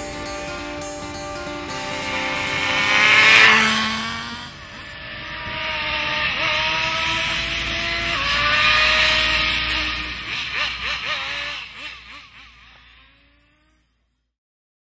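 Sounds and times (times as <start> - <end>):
high engine note climbing: 0.0 - 14.0
model car engine passing by: 0.0 - 14.3.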